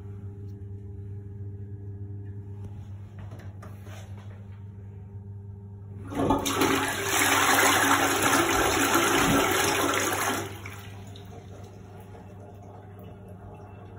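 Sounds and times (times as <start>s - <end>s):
toilet flushing: 6.0s - 13.9s.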